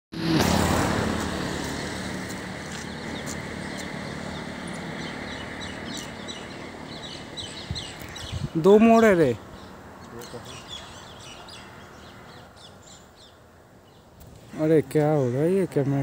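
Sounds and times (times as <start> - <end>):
vehicle passing close by: 0.1 - 8.5
high-pitched birds chirping: 2.0 - 14.3.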